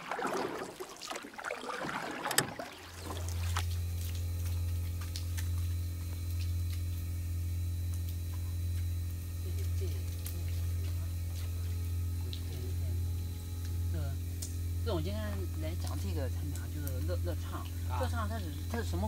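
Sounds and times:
water sloshing and splashing: 0.0 - 7.2
motor humming: 0.0 - 19.0.

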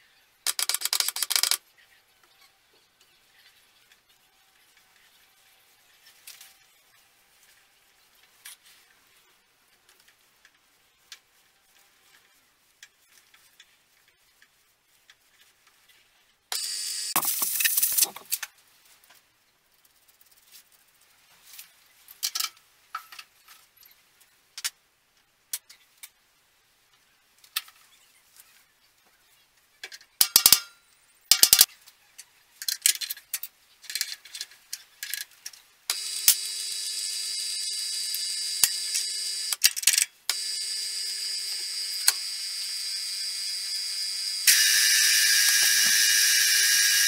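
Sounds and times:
milling machine spindle humming: 35.9 - 39.6, 40.3 - 47.0.

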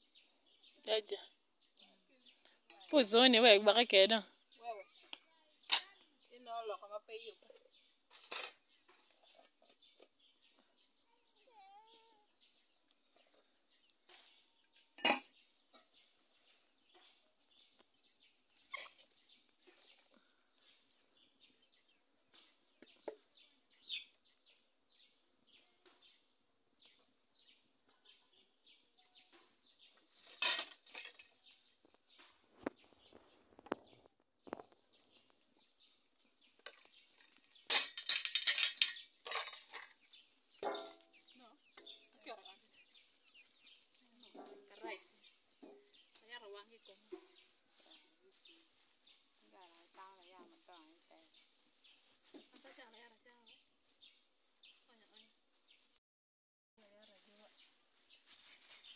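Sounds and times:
bird chirp: 0.0 - 56.0
dishes and lids clinking: 15.0 - 15.9, 30.3 - 31.3, 37.7 - 40.0, 40.6 - 41.0
metal lid and tray clatter: 30.3 - 31.3, 37.6 - 40.0.

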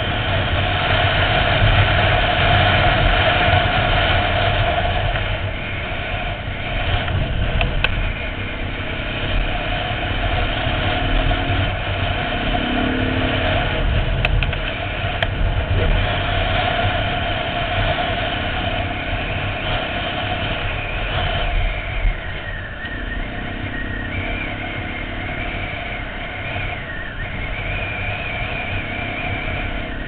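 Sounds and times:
dirt bike engine running: 0.0 - 30.0
wind rush on microphone: 0.0 - 30.0
sharp ticks: 6.9 - 9.5, 13.3 - 15.4.

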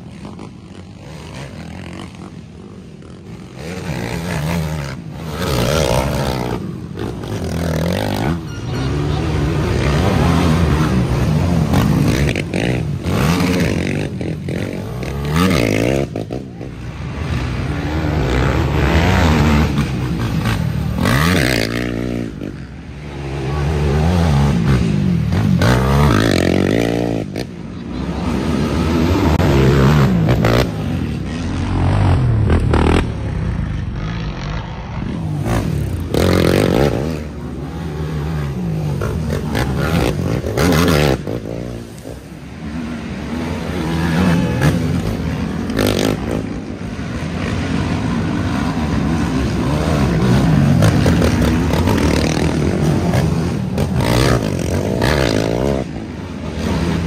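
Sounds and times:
quad engines revving: 0.0 - 57.0.

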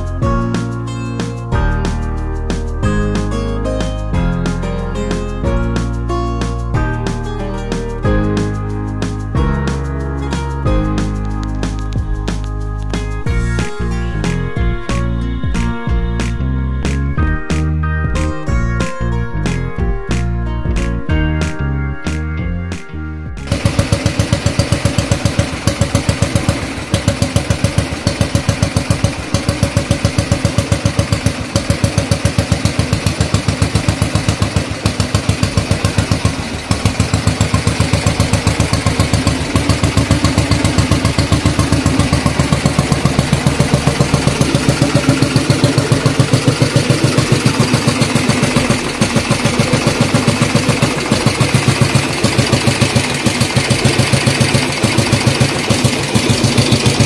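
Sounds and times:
motorcycle engine idling: 23.4 - 57.0.

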